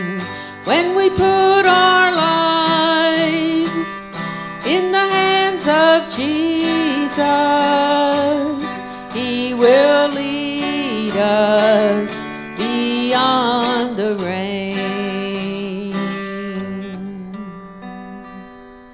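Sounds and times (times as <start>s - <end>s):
woman singing: 0.0s - 18.7s
acoustic guitar: 0.0s - 18.9s.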